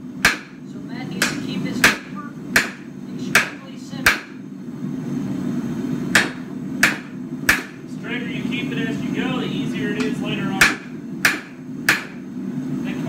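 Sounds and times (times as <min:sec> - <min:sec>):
steady low hum: 0:00.0 - 0:13.0
hammer striking steel on anvil: 0:01.2 - 0:04.4, 0:06.1 - 0:07.8, 0:10.6 - 0:12.2.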